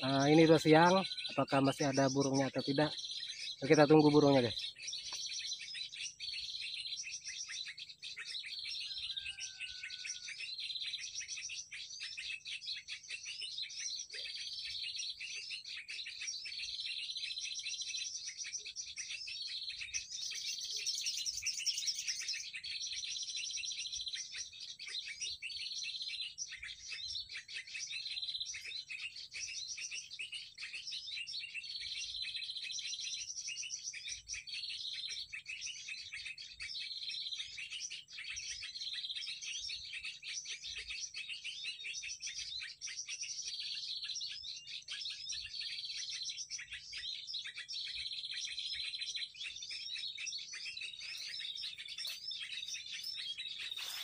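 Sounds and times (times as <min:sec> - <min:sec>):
high bird trill: 0:00.0 - 0:11.6, 0:47.6 - 0:54.0
small birds chirping: 0:00.0 - 0:54.0.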